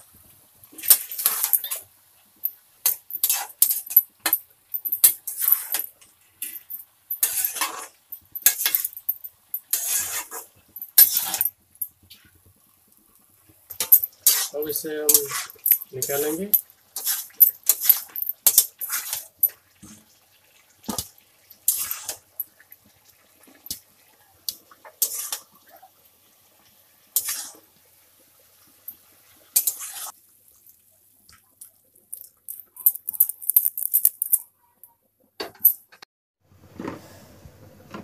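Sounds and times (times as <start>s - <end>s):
metal spoon scraping a pan: 3.2s - 3.9s, 5.2s - 6.6s, 7.2s - 8.8s, 9.6s - 11.5s, 13.8s - 14.5s, 15.1s - 19.3s, 21.7s - 22.2s, 25.0s - 25.5s, 27.2s - 27.6s, 29.6s - 30.2s.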